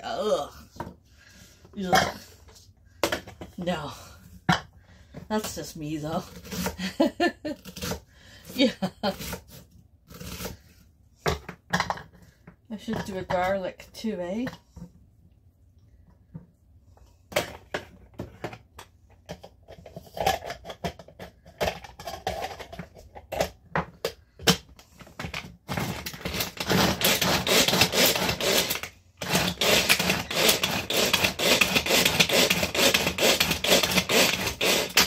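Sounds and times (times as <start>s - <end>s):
food chopper clicks and knocks: 23.4s - 35.0s.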